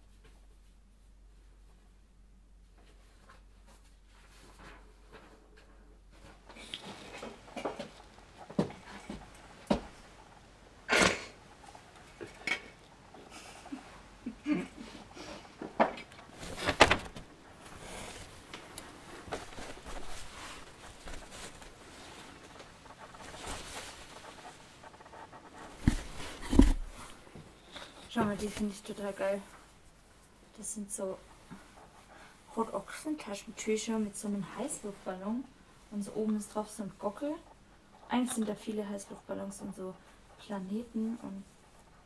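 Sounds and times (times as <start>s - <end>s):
paper and cloth rustling: 16.2s - 30.0s.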